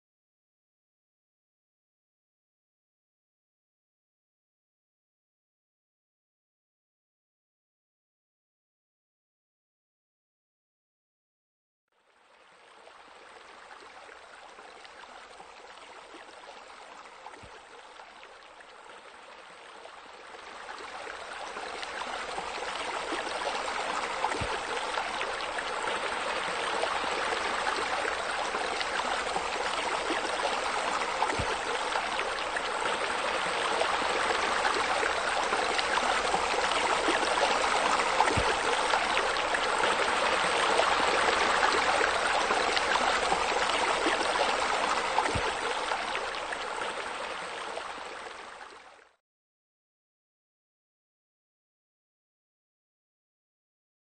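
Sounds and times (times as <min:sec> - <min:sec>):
waterfall splashing into pool: 0:31.2 - 0:33.1, 0:35.5 - 0:44.2, 0:44.8 - 0:45.9.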